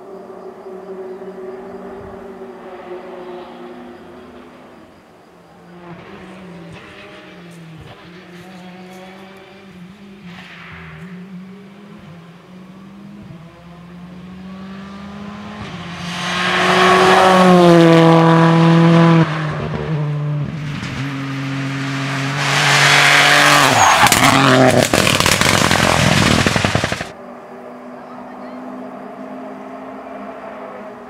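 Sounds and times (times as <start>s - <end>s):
rally car engine at full throttle: 0.0s - 31.0s
exhaust crackles and pops: 23.6s - 27.2s.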